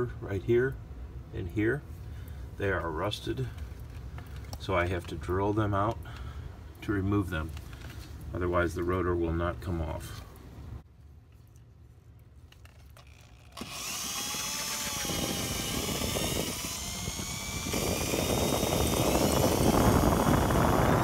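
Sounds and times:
electric drill whining: 13.0 - 21.0.

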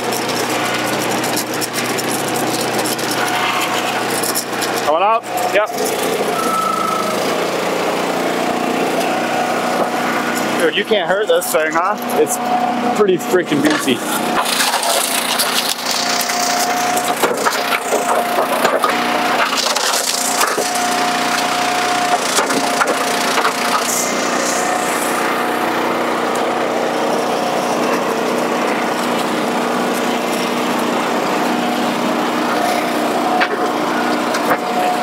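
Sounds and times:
wood cracking and splintering: 0.0 - 6.2, 13.6 - 25.4
log splitter engine running: 0.0 - 35.0.

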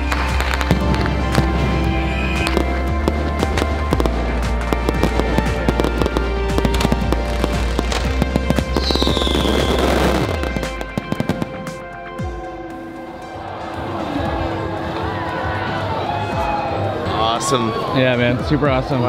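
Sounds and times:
firework falling whistle: 0.0 - 4.1, 4.9 - 11.6
fireworks crackling bangs: 0.0 - 11.8
background music with bass: 0.0 - 19.0.

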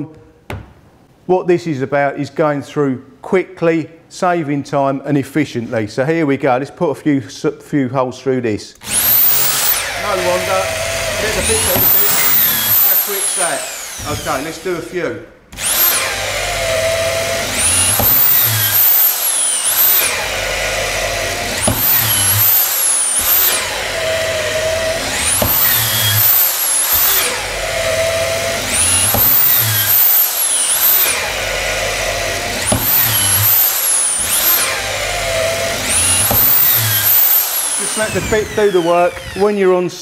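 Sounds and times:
cordless drill boring wood: 8.8 - 39.8.

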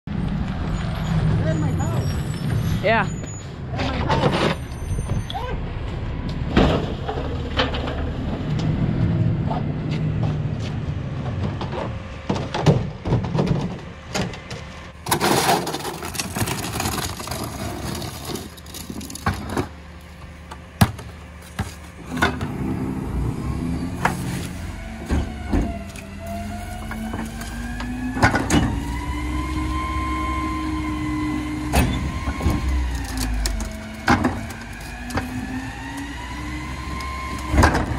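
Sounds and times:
garbage truck idling: 9.2 - 37.9
hydraulic whine: 22.0 - 37.9.

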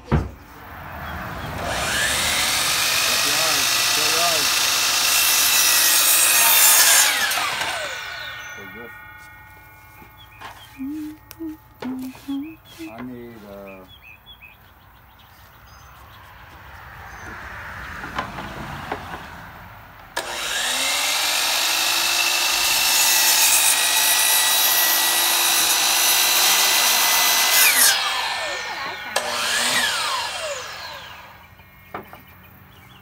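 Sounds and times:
miter saw cutting wood: 0.4 - 13.8, 20.2 - 32.3.

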